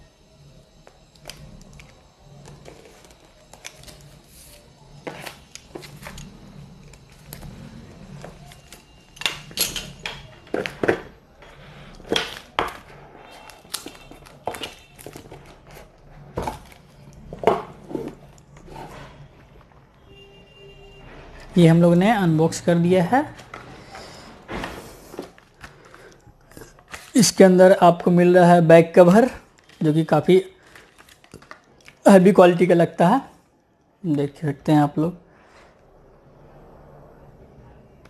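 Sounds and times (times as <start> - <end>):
plastic wrap crinkling and snapping: 12.2 - 17.2, 30.6 - 32.1.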